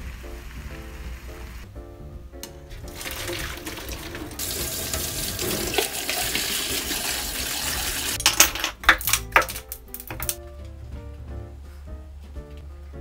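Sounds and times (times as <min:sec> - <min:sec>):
kitchen tap running: 0:02.5 - 0:10.4
water poured into a strainer: 0:02.8 - 0:08.2.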